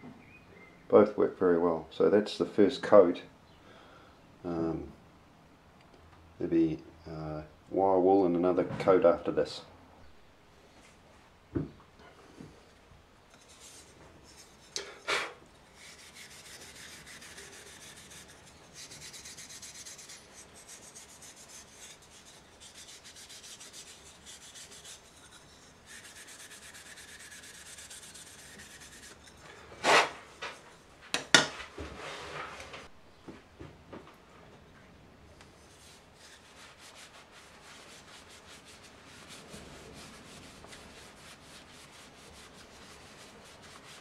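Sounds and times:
wire wool rubbing on wood: 13.3s - 14.9s, 15.5s - 31.2s, 35.6s - 44.0s.

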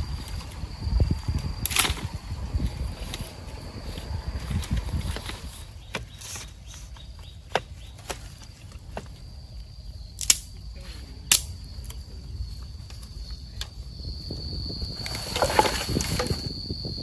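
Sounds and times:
high-pitched insect drone: 0.0s - 5.8s, 9.2s - 17.0s
wood fire crackling and popping: 10.2s - 10.5s, 11.3s - 12.0s.

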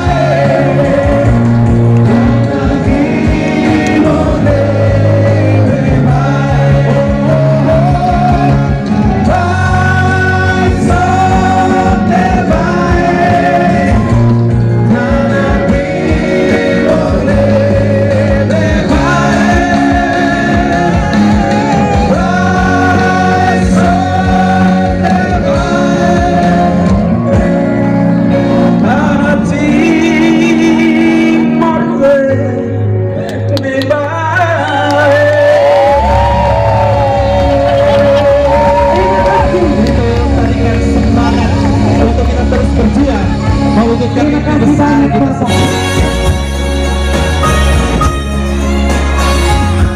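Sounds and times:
group singing through pa: 0.0s - 27.3s
live keyboard accompaniment: 0.0s - 49.9s.

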